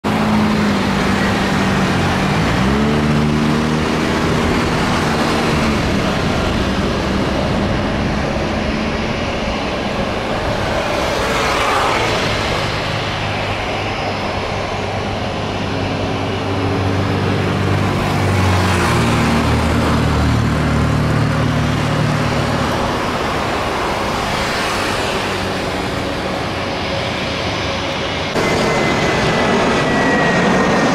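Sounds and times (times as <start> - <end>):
jet engines rumbling and whining: 0.0 - 30.9.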